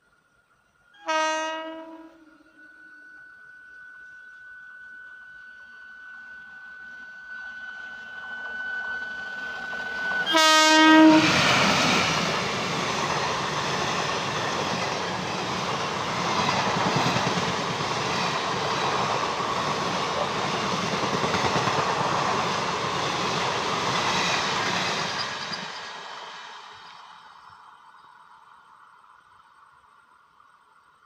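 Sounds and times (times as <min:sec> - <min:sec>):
train horn blast: 0:01.0 - 0:07.3, 0:10.2 - 0:11.5
train wheels rolling on rail: 0:06.3 - 0:28.5.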